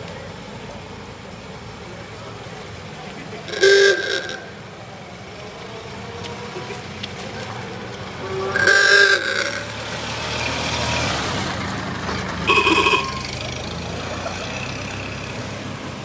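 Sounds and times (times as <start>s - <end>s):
car engines pulling away: 0.0s - 16.0s
car horn toots: 3.5s - 4.6s, 8.2s - 9.8s, 12.4s - 13.3s.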